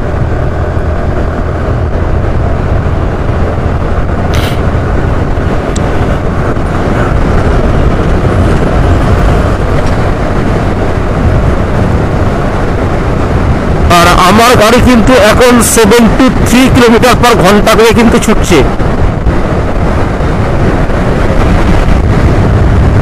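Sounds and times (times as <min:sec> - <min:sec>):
scooter engine and tyre noise: 0:00.0 - 0:23.0
wind rushing on microphone: 0:00.0 - 0:23.0
short hiss: 0:04.3 - 0:04.6.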